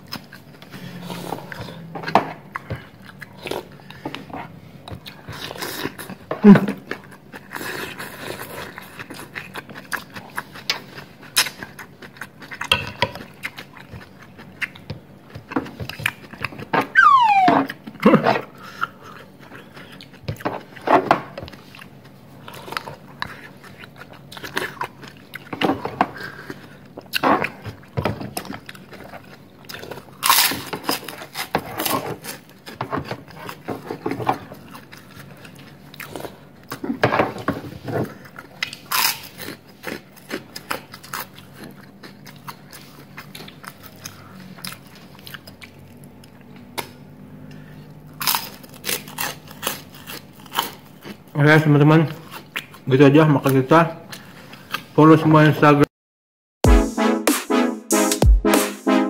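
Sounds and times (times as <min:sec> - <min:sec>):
chewing: 0:00.0 - 0:16.9, 0:17.7 - 0:55.0
short falling squeak: 0:17.0 - 0:17.7.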